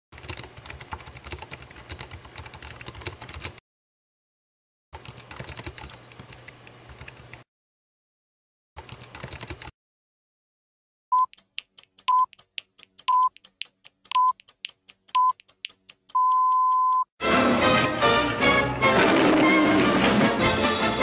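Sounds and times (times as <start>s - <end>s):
rapid computer keyboard typing: 0.2s - 3.6s, 5.0s - 7.4s, 8.8s - 9.7s, 11.2s - 17.0s.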